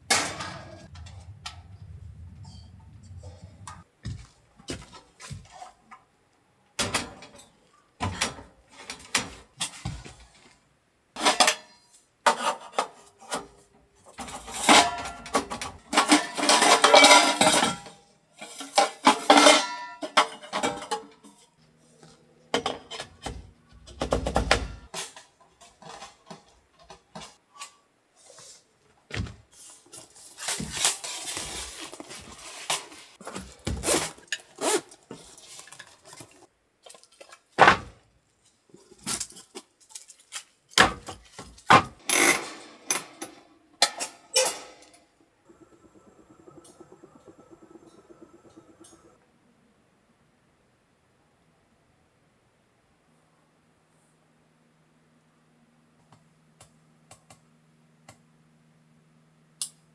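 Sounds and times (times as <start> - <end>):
dishes and cutlery clinking: 14.4 - 21.4.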